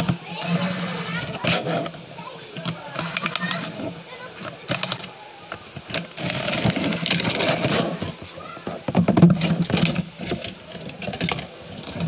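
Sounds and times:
plastic rubbing and scraping: 0.0 - 12.0
plastic clicks and knocks: 4.4 - 12.0.

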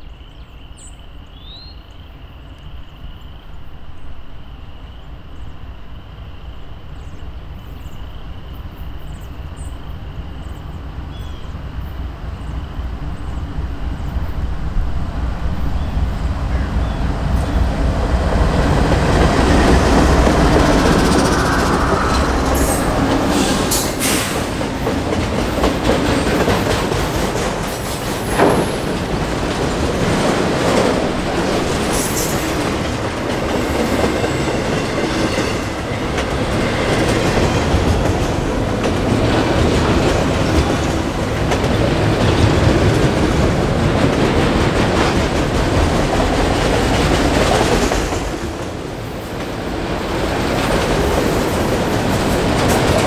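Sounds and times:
freight train wheels on rails: 5.0 - 53.0
sharp rail clicks: 19.0 - 33.0.

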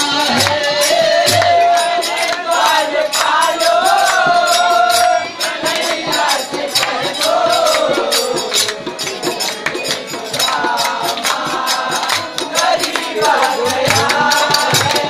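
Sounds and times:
man singing: 0.0 - 6.2
dholak drum: 0.0 - 15.0
harmonium: 0.0 - 15.0
sharp percussion strokes: 0.0 - 15.0.

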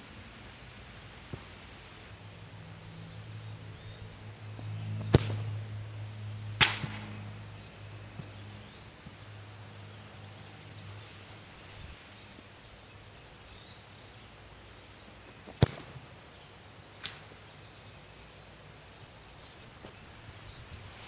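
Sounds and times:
steady low hum: 0.0 - 21.0
soccer ball being kicked: 4.6 - 5.6, 15.4 - 16.1.

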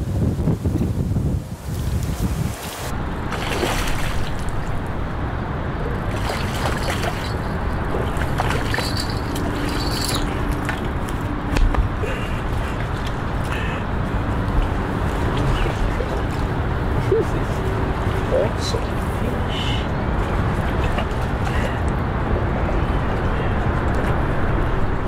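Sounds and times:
steady rushing noise: 0.0 - 25.0
fish splashing at water surface: 3.2 - 4.9, 5.9 - 11.0.

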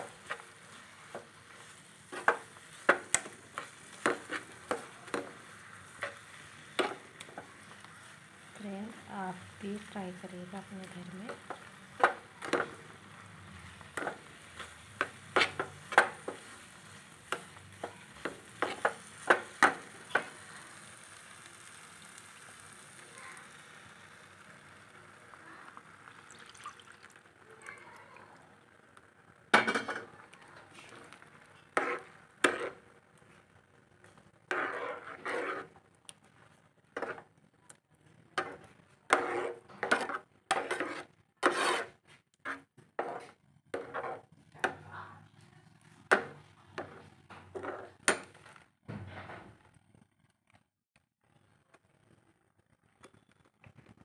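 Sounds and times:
spoon scraping a pan: 0.0 - 9.0, 9.8 - 20.8, 29.5 - 33.4, 34.0 - 35.9, 37.0 - 37.3, 38.4 - 44.8, 46.1 - 48.4
faint sizzle: 0.0 - 50.1.

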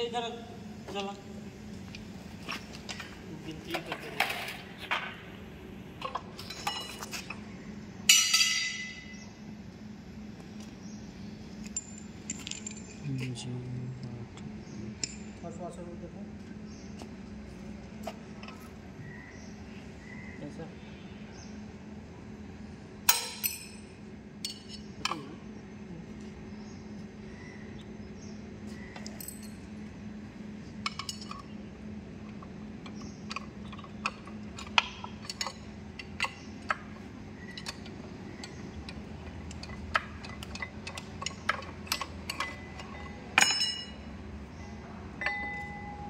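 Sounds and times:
low hum: 0.0 - 46.0
metallic clinks of wrenches: 33.3 - 44.1.

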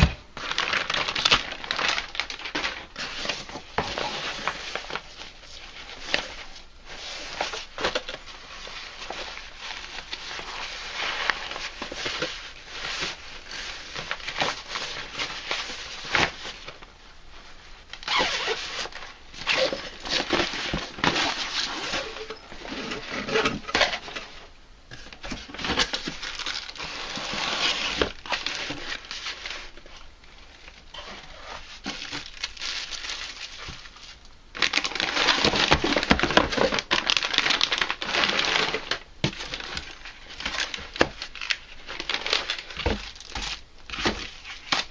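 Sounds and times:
plastic bags crinkling: 0.0 - 44.9
cardboard boxes scraping: 25.3 - 29.6.

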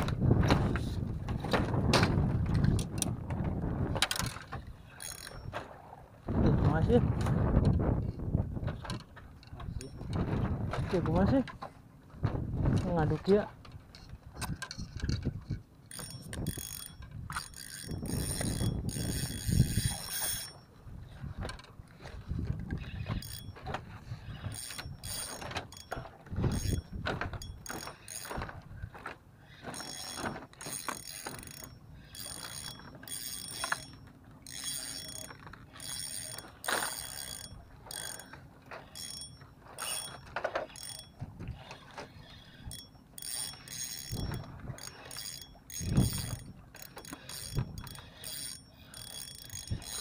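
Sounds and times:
fishing reel clicking and whirring: 2.4 - 3.2, 3.9 - 5.6, 13.9 - 20.7, 21.4 - 50.0.

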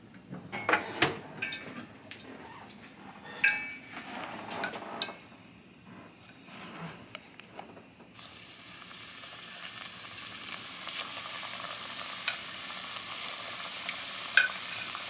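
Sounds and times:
utensil clinking against dishes: 3.2 - 3.9.

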